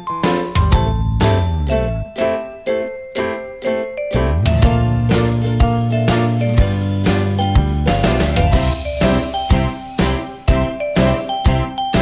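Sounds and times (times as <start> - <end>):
tinkling melody: 0.0 - 12.0
low bass part: 0.6 - 2.1, 4.2 - 7.0.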